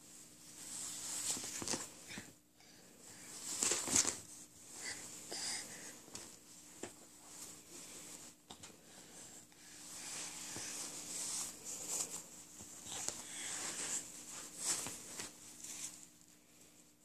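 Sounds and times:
faint steady hum: 0:00.0 - 0:17.0
cloth diaper rustling: 0:00.3 - 0:02.1, 0:03.3 - 0:05.2, 0:09.8 - 0:16.2.

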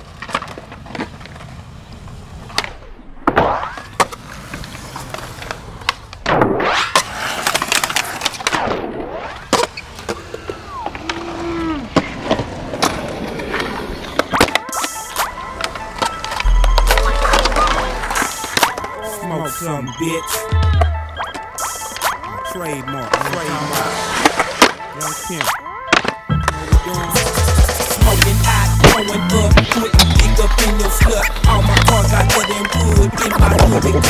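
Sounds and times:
skateboard wheels rolling on concrete: 0:00.0 - 0:34.0
skateboard tail pops and landings: 0:02.5 - 0:04.2, 0:28.8 - 0:30.4.

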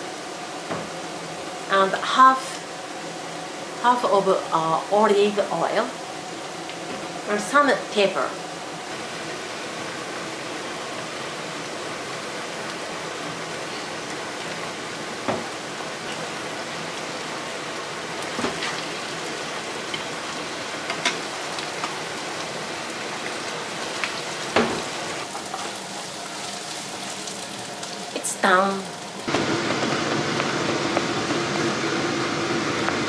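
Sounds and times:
meat sizzling in frying pan: 0:08.6 - 0:33.0.

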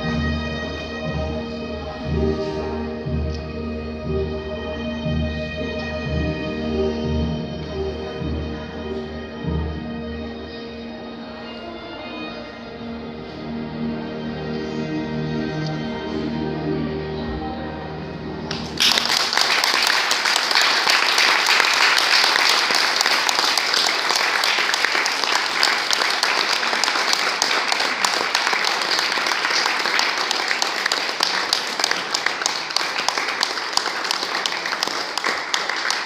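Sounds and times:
music: 0:00.0 - 0:36.0
audience applause: 0:18.5 - 0:36.0.

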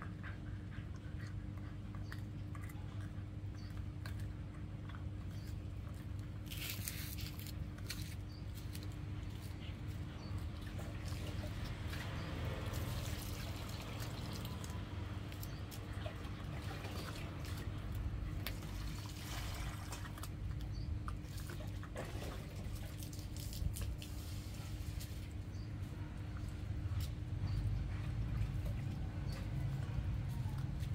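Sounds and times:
puppy chewing bone: 0:00.0 - 0:13.0.

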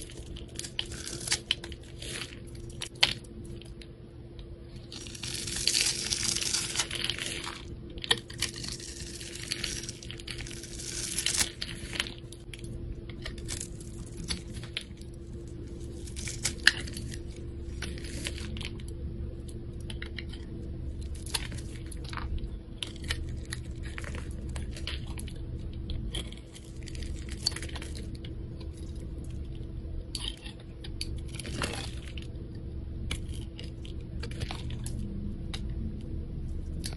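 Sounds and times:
knife cutting and scraping soap: 0:04.7 - 0:18.8.

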